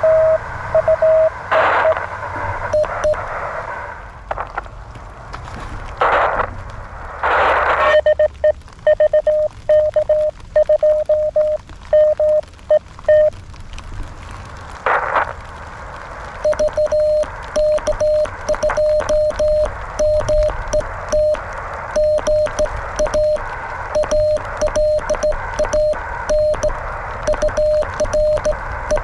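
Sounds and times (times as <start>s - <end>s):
morse code beeping tone: 0.0s - 2.0s, 2.7s - 3.2s, 8.9s - 12.4s, 13.1s - 13.3s, 16.4s - 21.4s, 22.0s - 23.4s, 24.0s - 26.7s, 27.3s - 29.0s
radio hiss bursts: 0.0s - 4.7s, 6.0s - 8.3s, 14.8s - 15.4s, 16.4s - 29.0s.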